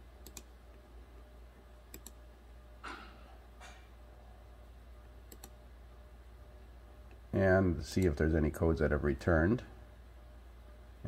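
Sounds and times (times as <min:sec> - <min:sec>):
low steady hum: 0:00.0 - 0:11.0
computer mouse clicking: 0:00.2 - 0:00.5, 0:01.9 - 0:02.2, 0:05.3 - 0:05.6.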